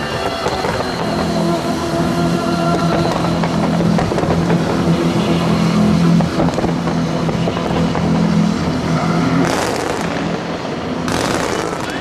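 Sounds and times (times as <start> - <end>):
fireworks crackling and popping: 0.0 - 12.0.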